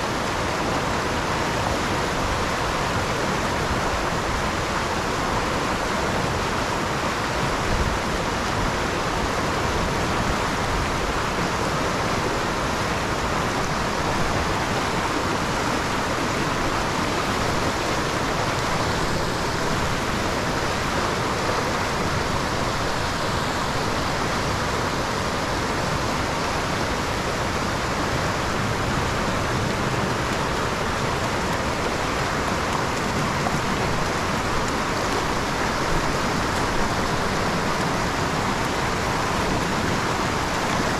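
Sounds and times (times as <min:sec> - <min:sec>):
creek water rushing: 0:00.0 - 0:40.9.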